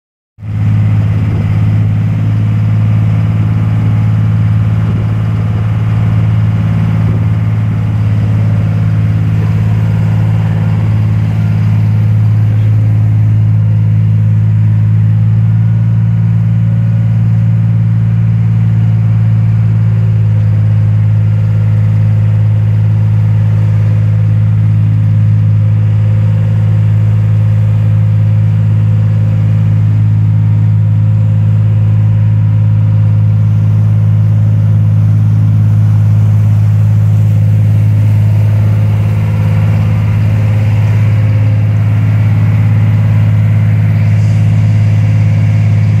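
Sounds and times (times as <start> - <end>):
boat motor droning: 0.4 - 46.0.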